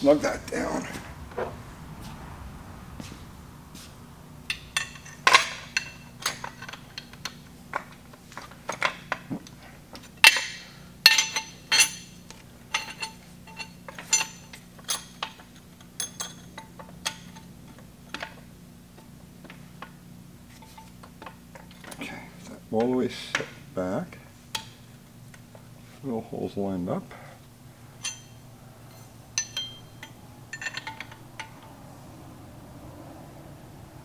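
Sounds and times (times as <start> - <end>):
metal-on-metal clinks: 4.5 - 7.4, 10.2 - 18.3, 28.0 - 31.8.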